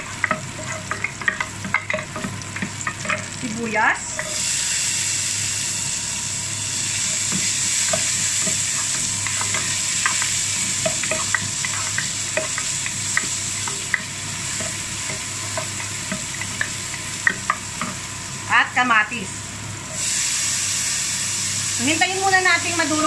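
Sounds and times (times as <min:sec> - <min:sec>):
onions sizzling in oil: 0:00.0 - 0:23.0
wooden spatula knocking pot: 0:00.2 - 0:03.3.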